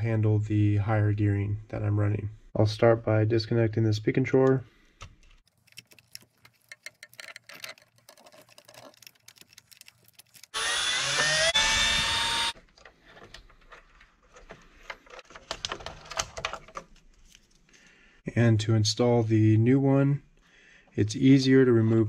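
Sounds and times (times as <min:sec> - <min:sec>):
plastic parts rattling: 0:05.3 - 0:10.6, 0:12.5 - 0:17.5
cordless screwdriver motor whine: 0:10.5 - 0:12.6.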